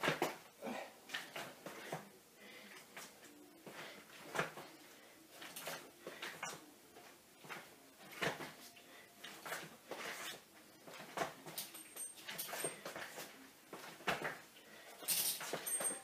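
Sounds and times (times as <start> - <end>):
feet shifting on tile floor: 5.4 - 16.0.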